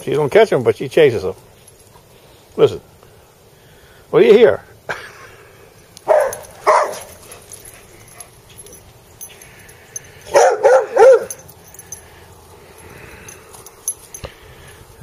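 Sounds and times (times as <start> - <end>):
dog yipping barks: 6.0 - 7.2, 10.3 - 11.4.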